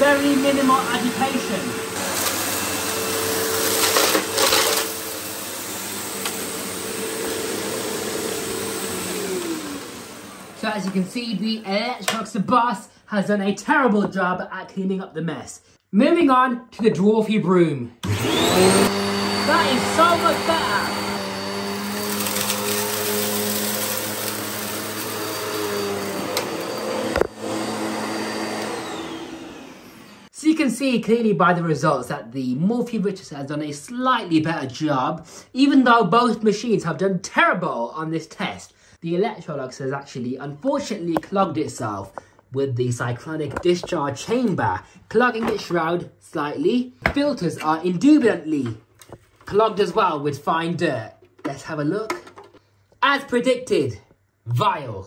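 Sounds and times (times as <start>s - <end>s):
vacuum cleaner running: 0.0s - 12.3s, 18.0s - 30.4s.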